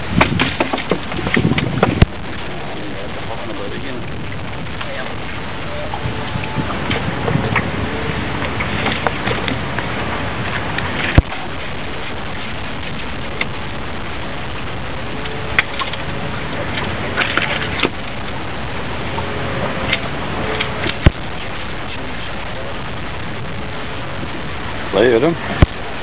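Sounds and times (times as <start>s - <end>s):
rain: 0.0s - 26.0s
wind: 0.0s - 26.0s.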